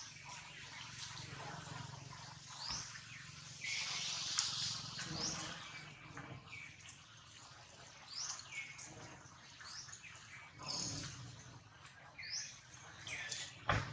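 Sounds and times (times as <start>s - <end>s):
birds chirping: 0.0s - 13.9s
faint outdoor background noise: 0.0s - 13.9s.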